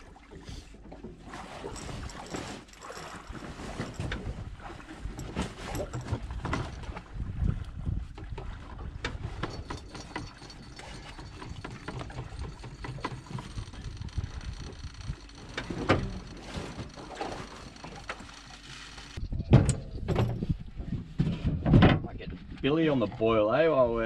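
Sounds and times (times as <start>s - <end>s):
steady low rumble: 10.7s - 22.6s.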